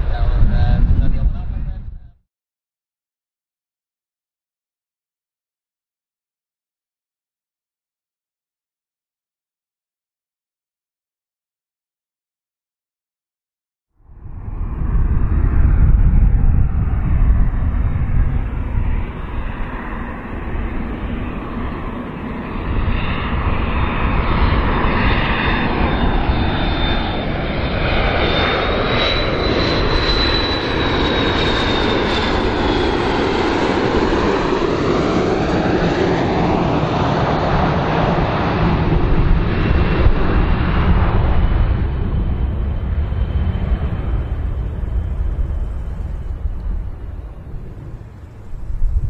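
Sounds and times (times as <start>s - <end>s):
jet airliner flying past: 0.0s - 2.2s, 14.0s - 49.0s.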